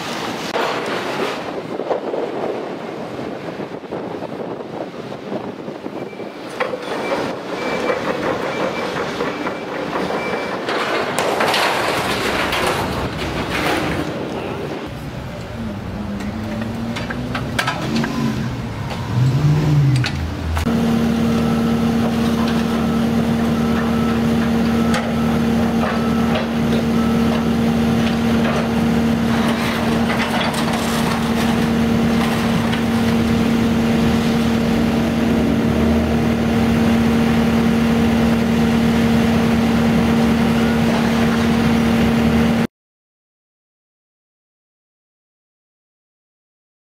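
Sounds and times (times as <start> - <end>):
excavator diesel engine and hydraulics: 0.0 - 42.7
debris clattering and scraping: 8.0 - 14.9, 23.8 - 33.7.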